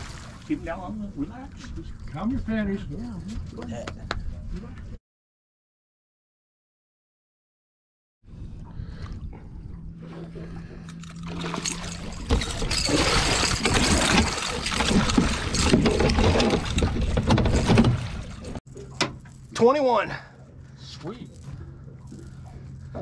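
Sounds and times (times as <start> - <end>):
low steady hum: 8.3 - 23.0.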